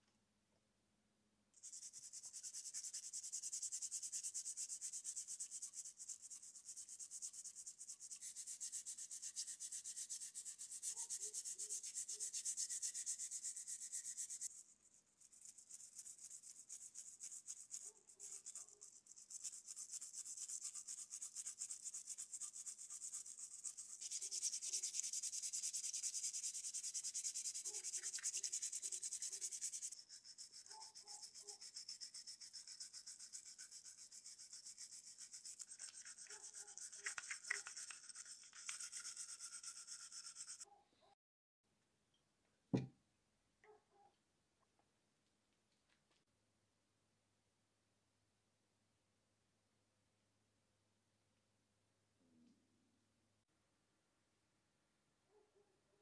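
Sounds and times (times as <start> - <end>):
wire brush scratching metal: 15.2 - 40.6.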